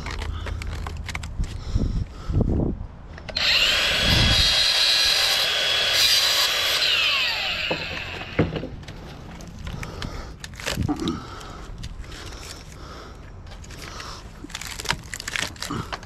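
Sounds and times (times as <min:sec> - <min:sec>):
angle grinder whining: 0:03.3 - 0:08.7.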